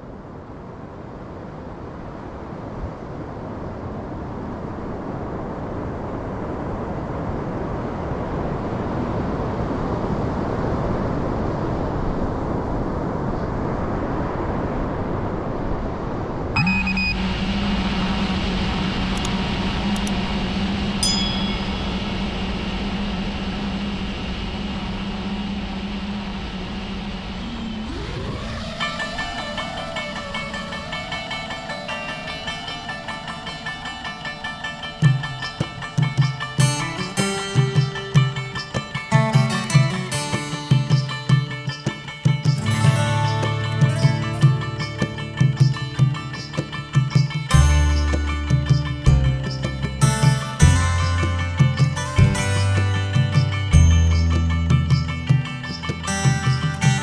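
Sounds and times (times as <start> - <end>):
rough surf rushing: 0.0 - 57.0
strong wind: 0.0 - 57.0
short beeps and clicks: 16.6 - 17.3
drone motors humming: 16.6 - 36.6.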